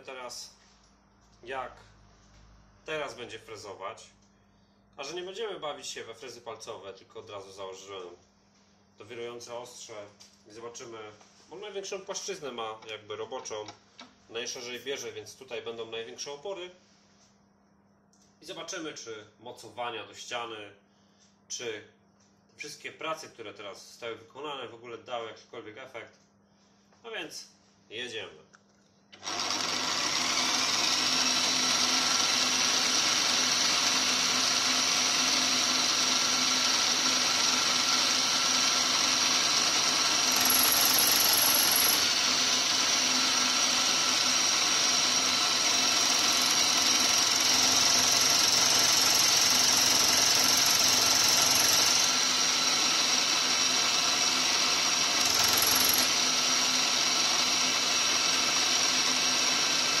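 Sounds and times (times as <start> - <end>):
milling machine whining: 29.2 - 60.0.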